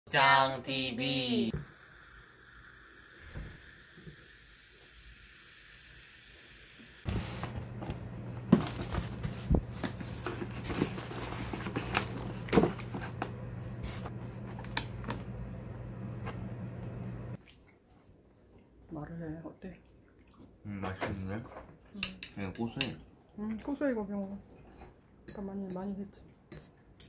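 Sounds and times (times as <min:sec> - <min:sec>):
styrofoam box being handled: 0:07.1 - 0:13.2
steady low hum: 0:07.1 - 0:17.4.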